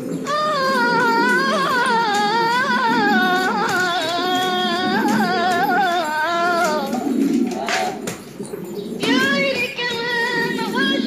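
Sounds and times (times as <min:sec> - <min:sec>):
solo voice singing devotional song: 0:00.3 - 0:07.2.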